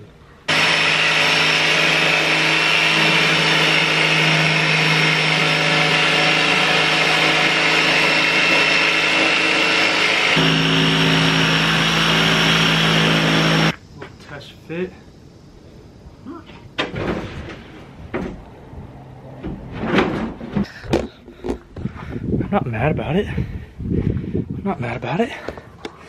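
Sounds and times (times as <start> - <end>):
electric jigsaw cutting plywood: 0.5 - 13.8.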